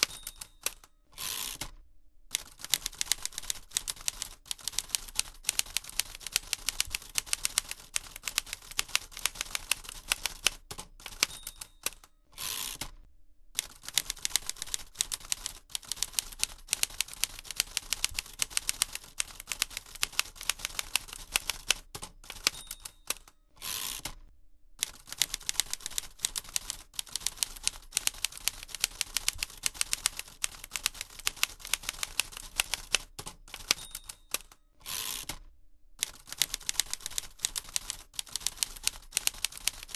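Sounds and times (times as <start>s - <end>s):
typewriter bell ding: 0.0s - 0.9s, 11.1s - 12.1s, 22.4s - 23.4s, 33.6s - 34.6s
typewriter keys clacking: 0.0s - 0.9s, 2.4s - 12.1s, 13.6s - 23.3s, 24.8s - 34.6s, 36.0s - 39.9s.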